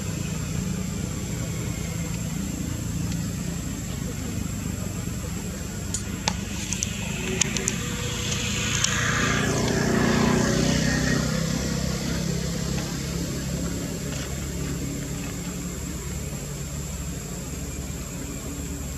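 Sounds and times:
vehicle passing by: 0.0 - 16.2
low engine hum: 0.0 - 18.9
sharp clicks: 5.9 - 9.8.

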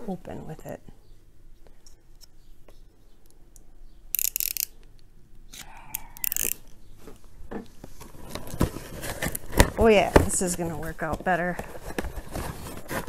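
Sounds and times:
box cutter blade clicking: 4.2 - 4.8, 5.6 - 6.6.

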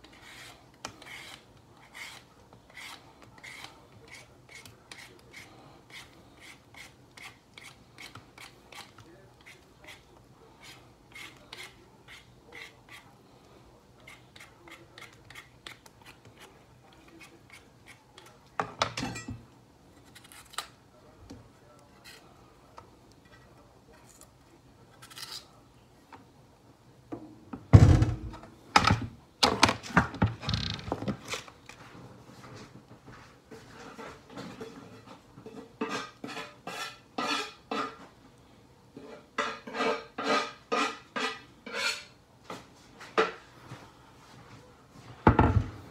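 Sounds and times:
knife scraping potato: 0.0 - 13.2, 14.0 - 18.3, 20.0 - 20.8, 21.9 - 22.3, 33.5 - 38.0, 39.0 - 42.2
knives and dishes clattering: 18.7 - 19.4, 34.4 - 38.0.

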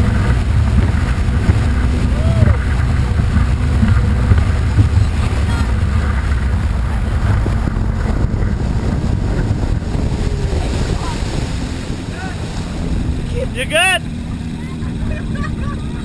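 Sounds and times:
outboard motor running: 0.0 - 16.0
wind and water rushing: 0.0 - 16.0.

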